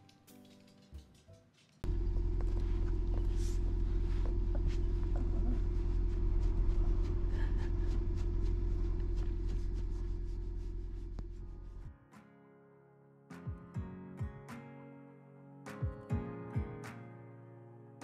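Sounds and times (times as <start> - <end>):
car road and engine rumble: 1.8 - 11.9
constant hum: 1.8 - 11.9.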